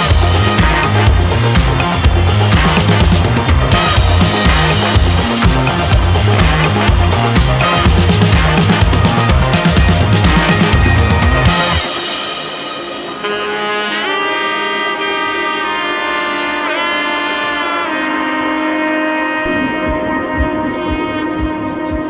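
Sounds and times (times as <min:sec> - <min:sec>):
steady beat: 0:00.0 - 0:14.2, 0:19.4 - 0:22.0
sliding held melody notes: 0:00.3 - 0:22.0.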